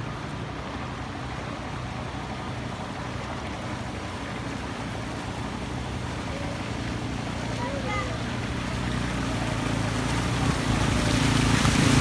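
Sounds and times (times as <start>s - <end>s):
motorcycle engines running: 0.0s - 12.0s
water sloshing: 0.0s - 12.0s.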